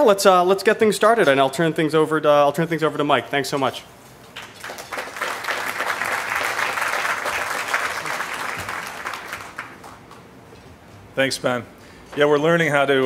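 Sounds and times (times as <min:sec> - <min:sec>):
audience applauding: 0:04.4 - 0:10.4.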